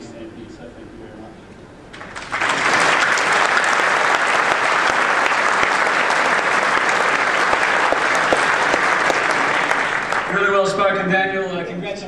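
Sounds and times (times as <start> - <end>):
audience applauding: 1.9 - 10.7.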